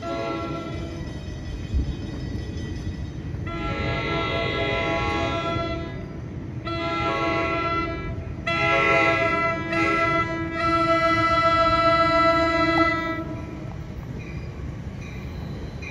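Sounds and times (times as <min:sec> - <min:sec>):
train horn blasts: 0:00.0 - 0:01.1, 0:03.4 - 0:13.7
low rumble of approaching train: 0:00.0 - 0:15.9.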